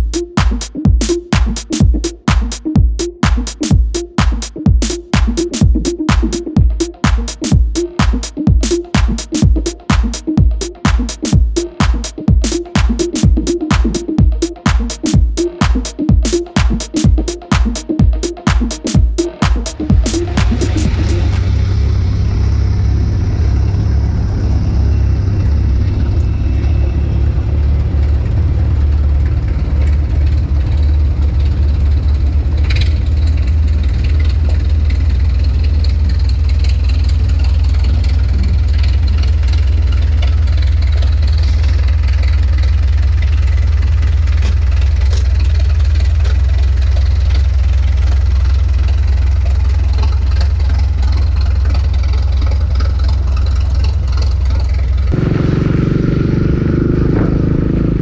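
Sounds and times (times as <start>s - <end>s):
machine engine droning: 19.6s - 58.0s.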